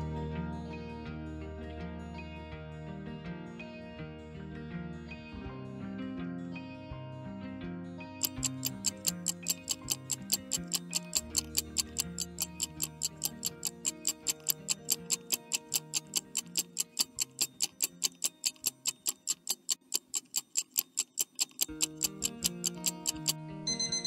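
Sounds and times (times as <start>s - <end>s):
light background music: 0.0s - 19.8s, 21.6s - 24.0s
clock ticking: 8.2s - 24.0s.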